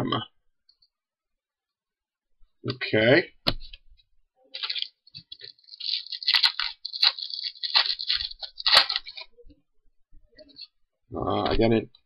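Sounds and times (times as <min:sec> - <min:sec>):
foil wrapper tearing and crinkling: 0:04.6 - 0:09.3.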